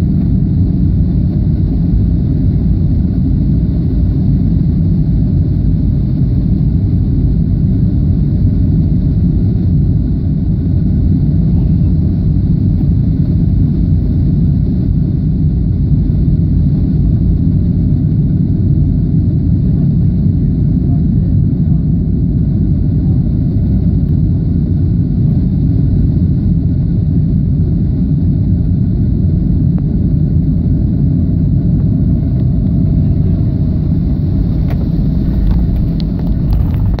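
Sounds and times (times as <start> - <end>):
jet airliner cabin rumble: 0.0 - 37.0.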